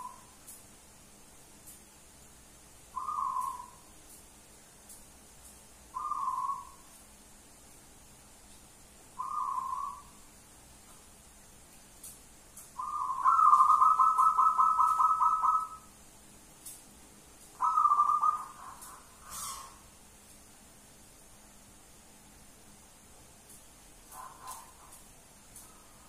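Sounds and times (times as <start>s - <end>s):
dove cooing: 0.0s - 0.3s, 3.0s - 3.8s, 6.0s - 6.8s, 9.2s - 10.1s, 12.8s - 15.9s, 17.6s - 19.8s.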